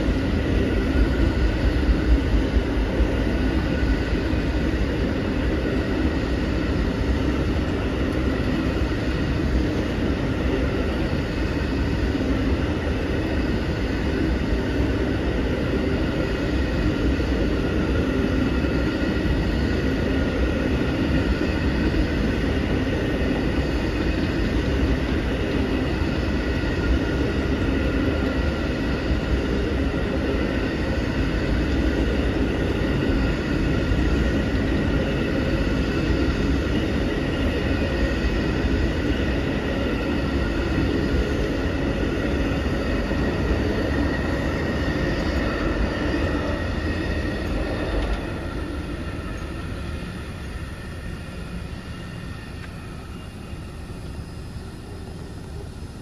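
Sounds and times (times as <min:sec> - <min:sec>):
train wheels rumbling on rails: 0:00.0 - 0:56.0.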